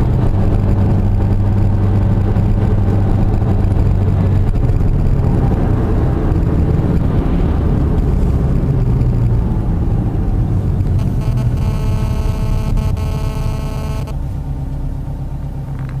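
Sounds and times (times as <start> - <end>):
car engine and tyre rumble: 0.0 - 16.0
steady pitched tone: 10.8 - 14.4.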